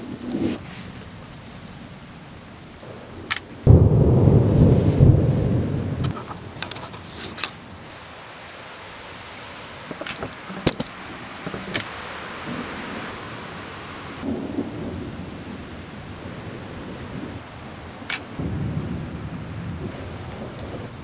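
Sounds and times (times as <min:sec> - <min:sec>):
rain hiss: 0:00.0 - 0:21.0
thunder rumble: 0:00.0 - 0:21.0.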